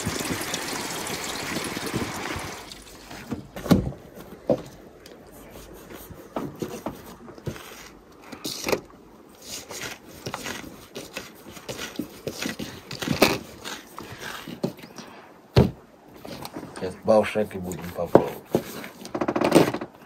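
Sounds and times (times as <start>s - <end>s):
knife cutting dough: 9.4s - 14.7s.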